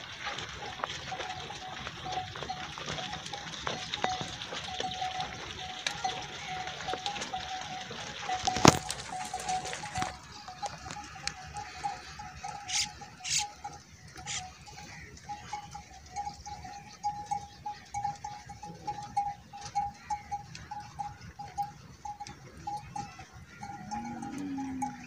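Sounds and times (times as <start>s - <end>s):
feet clicking on gravel: 0.0s - 15.1s
camel sounds: 0.1s - 25.0s
wavering high tone: 23.8s - 25.0s.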